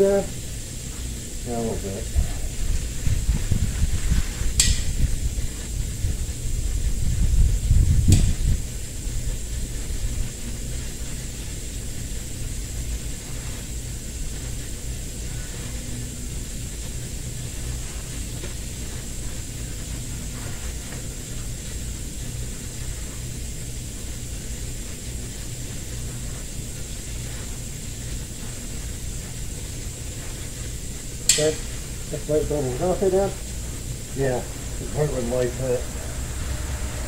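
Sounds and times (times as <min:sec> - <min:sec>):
low mechanical hum: 0:00.0 - 0:37.0
faint high whine: 0:12.5 - 0:37.0.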